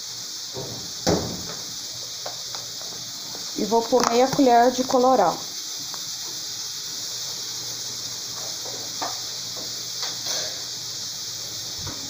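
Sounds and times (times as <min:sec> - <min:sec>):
pressure cooker hissing steam: 0:00.0 - 0:12.0.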